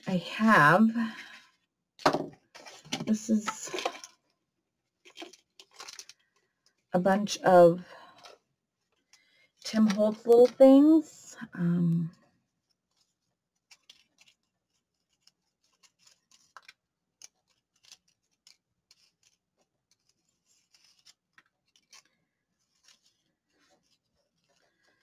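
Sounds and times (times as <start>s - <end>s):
paper pieces rustling: 5.0s - 6.8s, 12.8s - 25.0s.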